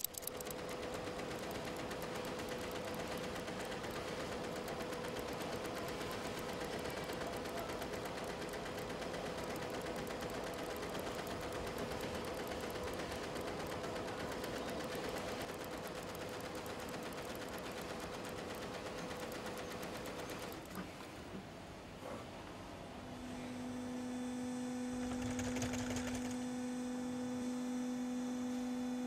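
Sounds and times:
single machine clicks: 0.0s - 3.8s
machine hum: 0.0s - 20.7s
embroidery machine needle clatter: 0.0s - 20.8s, 25.0s - 26.5s.

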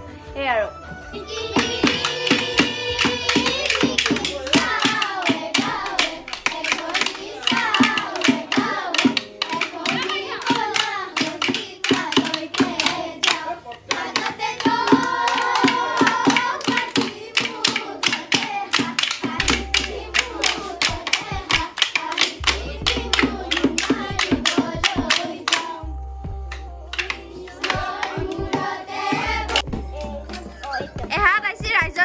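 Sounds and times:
women and children singing: 1.2s - 29.7s
bamboo clappers and hand clapping: 1.3s - 25.9s, 26.5s - 31.0s.

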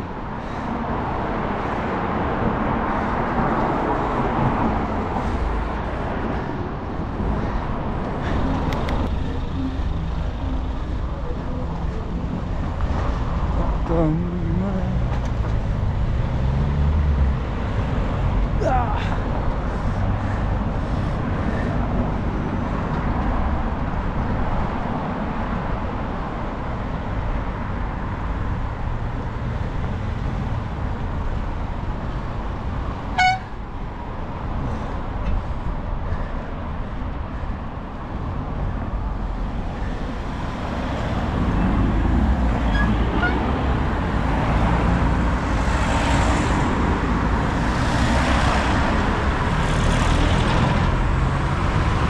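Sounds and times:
cars and vans passing: 0.0s - 52.0s
short horn toot: 33.2s - 33.5s.

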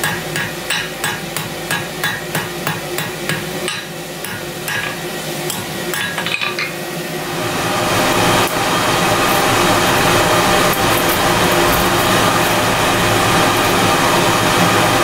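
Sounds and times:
hammer striking steel on anvil: 0.0s - 6.8s.

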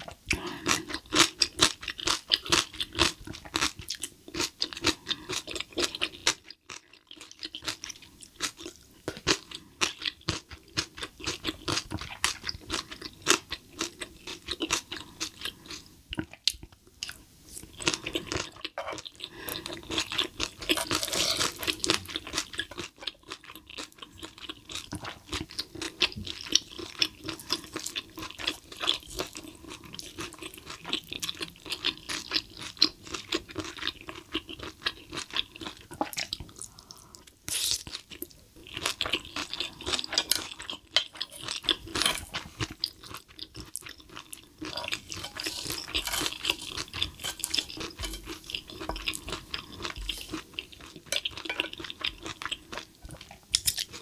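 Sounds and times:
close-miked wet chewing: 1.8s - 54.0s
utensils scraping a hot plate: 20.7s - 21.7s, 44.8s - 48.4s.

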